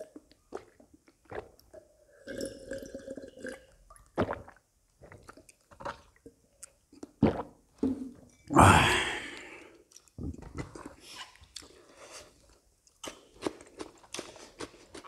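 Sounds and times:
man chewing: 9.1s - 15.0s.

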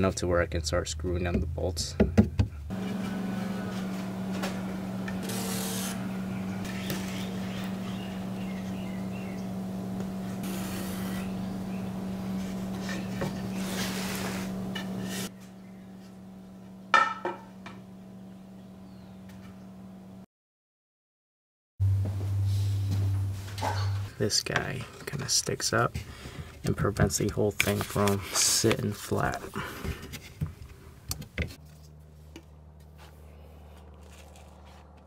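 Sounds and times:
steady low hum: 2.6s - 20.2s, 21.8s - 26.3s
marker and straightedge scraping wood: 10.4s - 11.4s, 12.4s - 15.3s.

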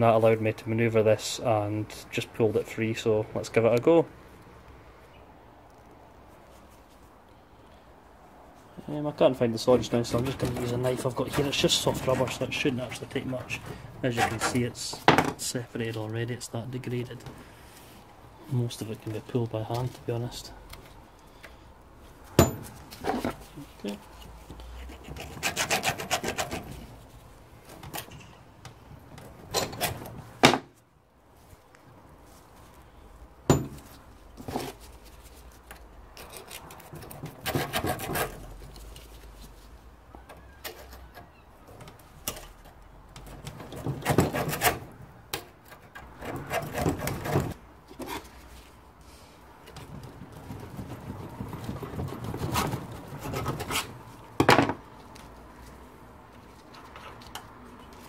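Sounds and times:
metal clunks and scraping: 22.3s - 23.6s, 29.2s - 30.8s
sharp metal knocks: 22.4s - 22.8s, 33.5s - 33.9s.

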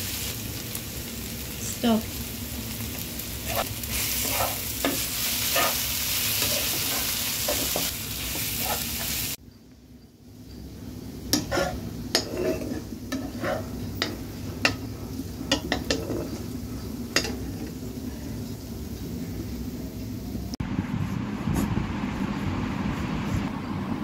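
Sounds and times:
onions frying in oil: 0.0s - 9.4s, 10.2s - 20.6s
metal spatula scraping a pan: 3.5s - 9.2s, 11.3s - 14.8s, 15.5s - 16.4s.

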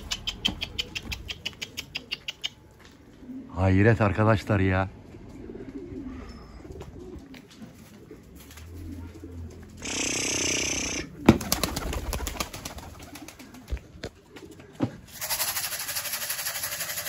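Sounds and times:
sharp clicks: 0.0s - 2.6s
pigeons cooing: 0.0s - 4.2s, 4.9s - 17.0s
wings fluttering: 6.6s - 17.0s.

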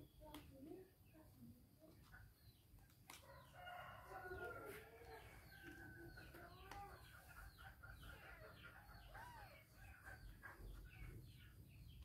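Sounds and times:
small birds chirping: 0.0s - 12.0s
fowl crowing and clucking: 3.2s - 11.0s.

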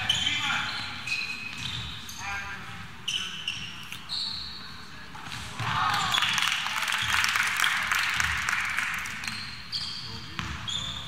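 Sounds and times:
sneakers squeaking on court: 0.0s - 6.4s, 9.1s - 11.0s.

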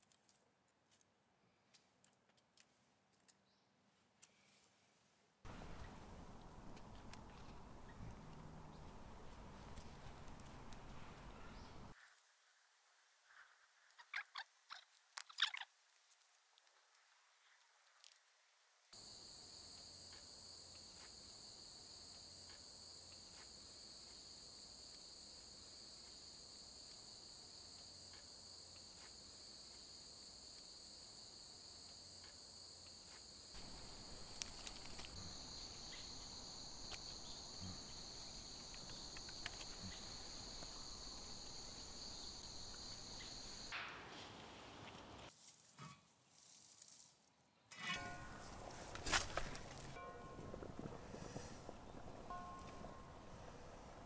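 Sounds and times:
insects chorus: 19.0s - 43.8s
bamboo strips clicking: 34.2s - 35.2s.

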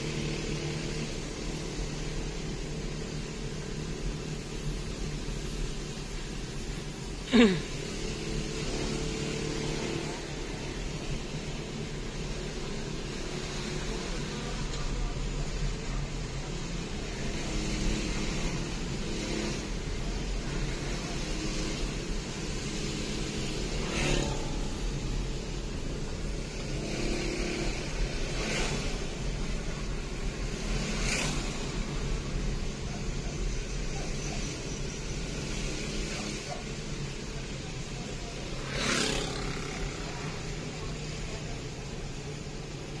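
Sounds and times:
road noise inside car: 0.0s - 43.0s
rushes of noise: 13.0s - 43.0s.

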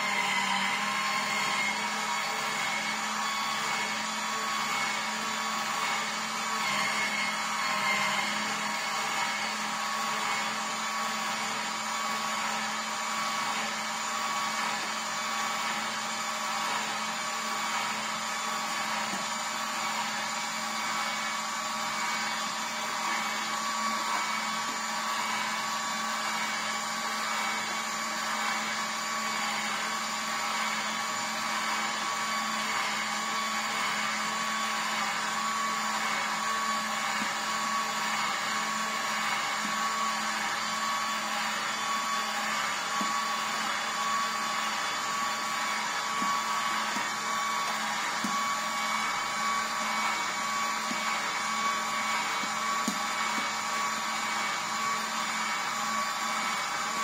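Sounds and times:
juicer motor humming and whining: 0.0s - 57.0s.

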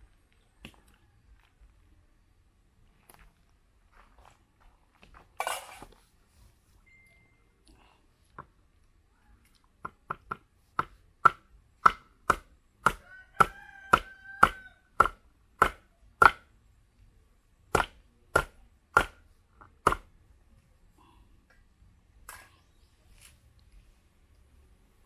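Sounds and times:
machete chopping on wooden block: 9.9s - 16.5s, 17.7s - 19.2s, 19.8s - 20.1s.

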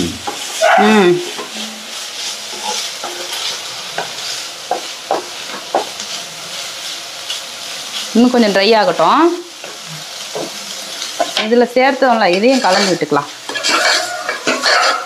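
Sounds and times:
meat sizzling: 0.0s - 15.0s
spatula scraping frying pan: 0.3s - 6.2s, 12.1s - 15.0s
spatula knocking against pan: 4.7s - 5.9s.

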